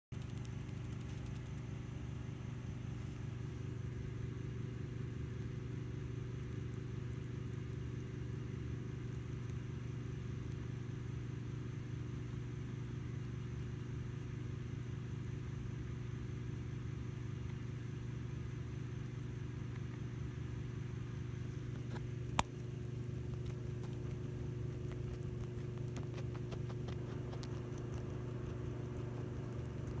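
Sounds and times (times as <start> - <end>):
low machine hum: 0.1 - 30.0
sharp click: 0.2 - 1.7.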